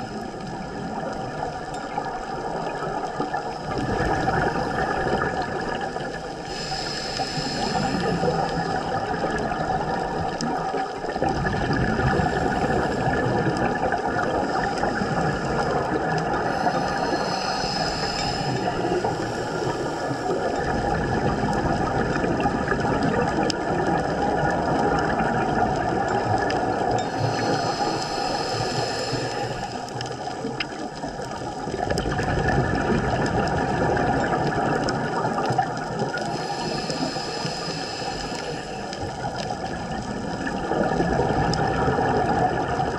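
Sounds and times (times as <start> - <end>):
exhaled bubbles rushing: 0.0 - 6.5, 7.6 - 42.9
diver breathing through regulator: 3.7 - 9.0, 12.0 - 13.7, 14.3 - 20.9, 26.9 - 31.1, 35.4 - 41.0.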